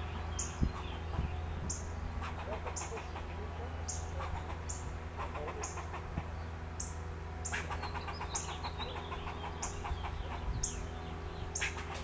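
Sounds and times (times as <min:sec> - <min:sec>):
squirrel alarm calls: 0:00.0 - 0:12.0
squirrel stuttering chatter: 0:02.2 - 0:06.3, 0:07.4 - 0:10.9.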